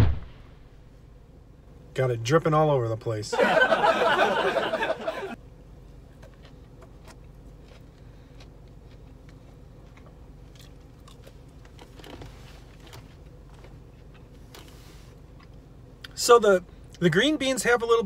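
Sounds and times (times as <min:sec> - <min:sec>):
low steady hum: 0:00.0 - 0:18.0
person chewing crunchy food: 0:06.2 - 0:15.6.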